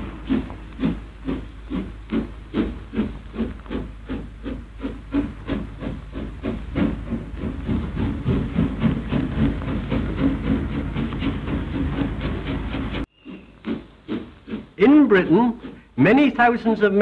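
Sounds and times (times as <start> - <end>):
steam locomotive exhaust chuffing: 0.0 - 17.0.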